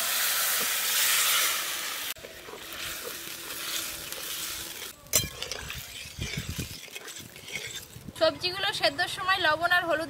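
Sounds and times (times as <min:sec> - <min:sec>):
food sizzling in hot oil: 0:00.0 - 0:08.2
steel spatula stirring in a wok: 0:00.1 - 0:08.1.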